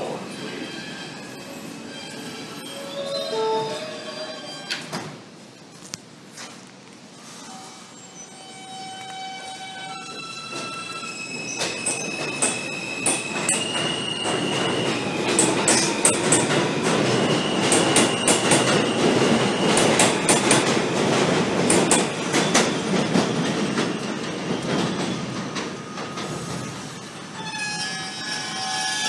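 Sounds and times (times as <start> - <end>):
high wheel squeal: 27.3 - 29.0.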